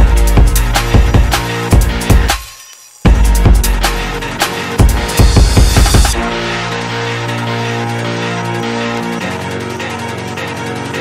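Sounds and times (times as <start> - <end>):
background music with drum beat: 0.0 - 7.6.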